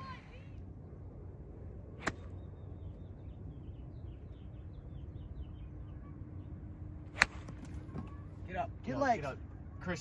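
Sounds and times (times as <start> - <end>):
low wind rumble: 0.0 - 10.0
bird chirping: 2.1 - 6.8.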